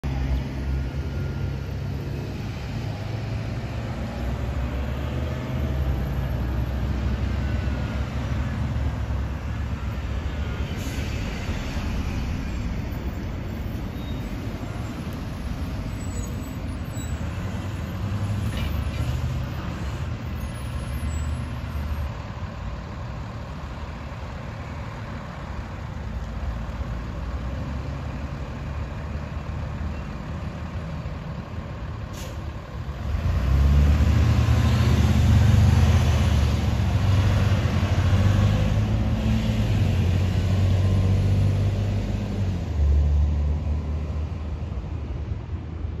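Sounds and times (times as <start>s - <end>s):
bus diesel engine: 0.0s - 46.0s
air brake release: 10.7s - 11.3s, 32.1s - 32.6s.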